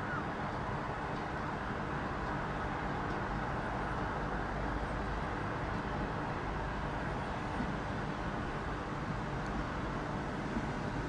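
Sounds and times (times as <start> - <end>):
diesel train engine rumble: 0.0 - 11.0.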